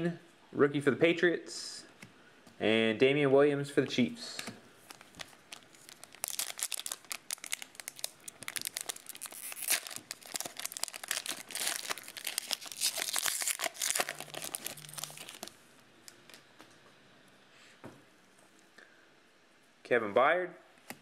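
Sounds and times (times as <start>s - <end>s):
plastic wrapper tearing and crinkling: 4.8s - 16.4s.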